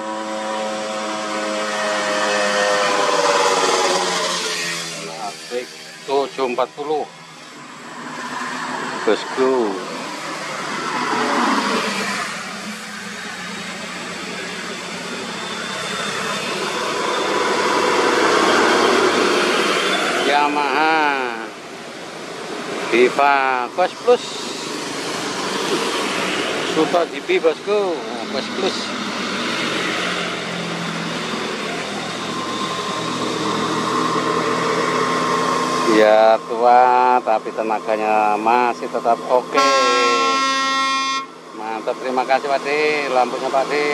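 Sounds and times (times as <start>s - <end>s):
diesel truck engine and tyres: 0.0s - 39.5s
steady whine: 1.1s - 43.9s.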